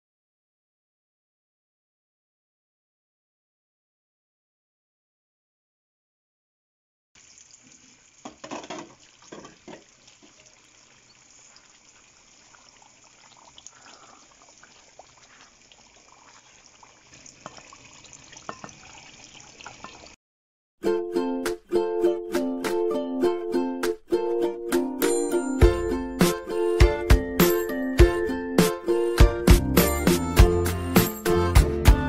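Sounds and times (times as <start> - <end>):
gravy sizzling and bubbling: 7.2 - 20.2
stirring scrapes and knocks: 8.2 - 10.6
ukulele music: 20.8 - 32.0.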